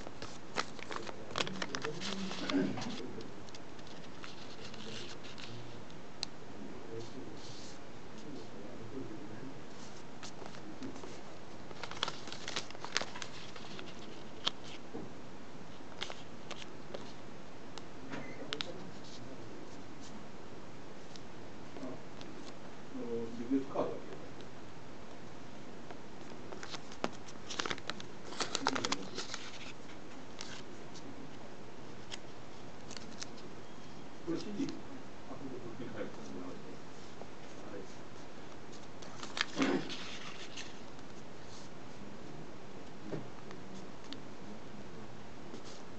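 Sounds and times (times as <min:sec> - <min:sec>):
paper crackling and rustling: 0:00.0 - 0:05.6, 0:09.7 - 0:14.8, 0:15.8 - 0:17.2, 0:26.2 - 0:31.1, 0:31.9 - 0:33.5, 0:36.0 - 0:41.7.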